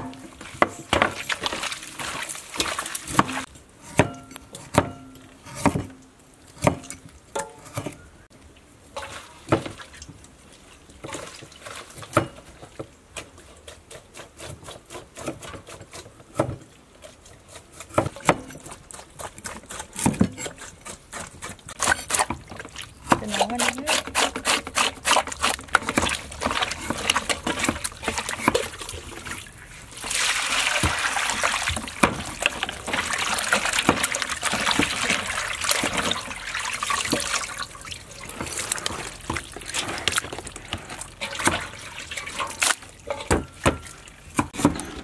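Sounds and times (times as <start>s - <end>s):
wet squelching of meat kneaded: 20.6s - 43.2s.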